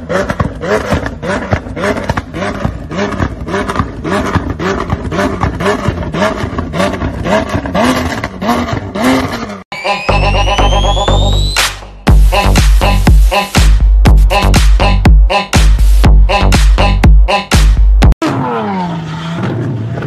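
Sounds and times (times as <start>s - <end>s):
exhaust pops and bangs: 0.0s - 9.0s
car engine revving: 0.0s - 20.0s.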